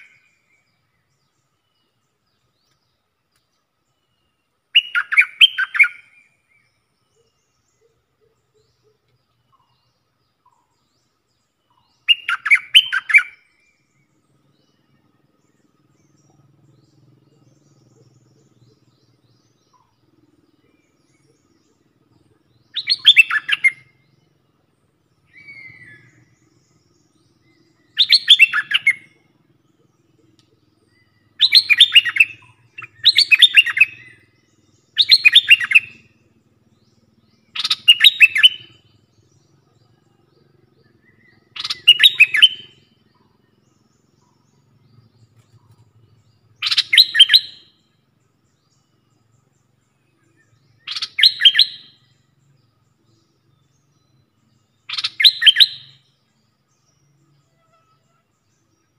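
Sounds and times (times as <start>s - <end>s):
bird singing: 0.0s - 58.9s.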